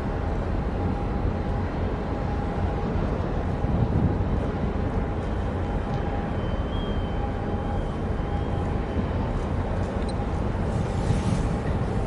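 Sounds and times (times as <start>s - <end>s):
wind buffeting microphone: 0.0s - 6.4s, 7.2s - 12.0s
low harbour rumble: 0.0s - 12.0s.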